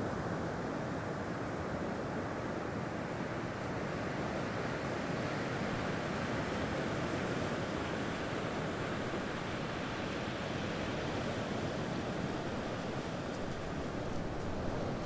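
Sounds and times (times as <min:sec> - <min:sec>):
wind: 0:00.0 - 0:15.0
sea surf breaking on beach: 0:05.3 - 0:15.0.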